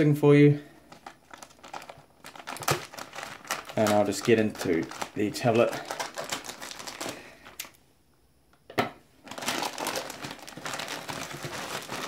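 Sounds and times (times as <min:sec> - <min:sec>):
plastic bag crinkling: 0:00.9 - 0:07.7, 0:09.2 - 0:12.0.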